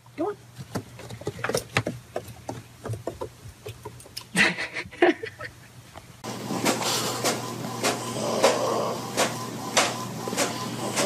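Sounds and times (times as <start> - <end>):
person chuckling: 3.7 - 5.8.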